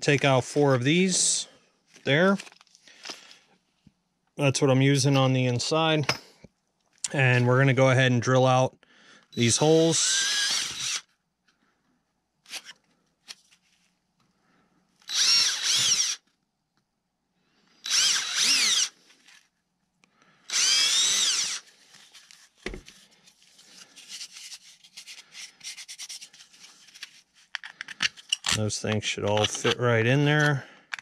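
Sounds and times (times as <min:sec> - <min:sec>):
cordless drill boring wood: 0:09.4 - 0:11.1, 0:15.0 - 0:16.2, 0:17.8 - 0:19.0, 0:20.5 - 0:21.7.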